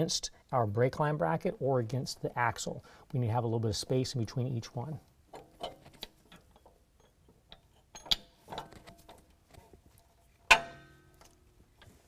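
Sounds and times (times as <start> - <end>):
metal bracket and bolts clinking: 5.3 - 9.8, 10.4 - 12.0.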